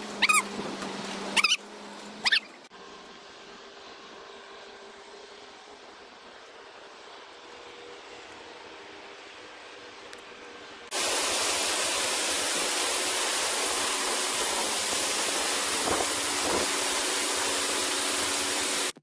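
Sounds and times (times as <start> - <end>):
fans rushing air: 5.2 - 19.0.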